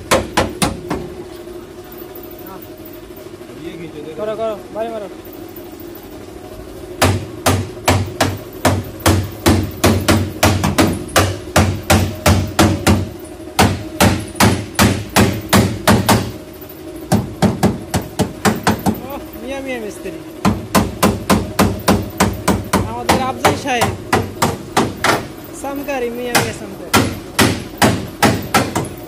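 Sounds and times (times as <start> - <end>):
hammer on metal: 0.0 - 1.1, 7.0 - 16.4, 17.1 - 19.0, 20.4 - 25.3, 26.3 - 29.0.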